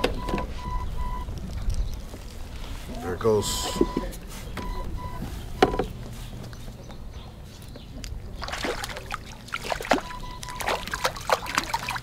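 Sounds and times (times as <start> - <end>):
fish splashing at water surface: 8.4 - 12.0.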